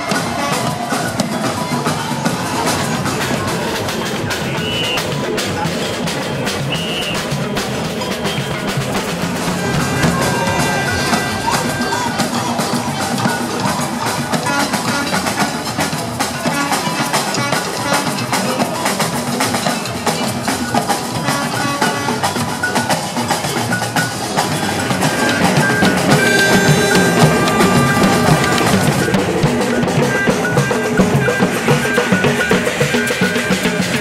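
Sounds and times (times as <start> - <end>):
bass drums: 0.0 - 14.4, 23.3 - 34.0
samba percussion drumming: 0.0 - 34.0.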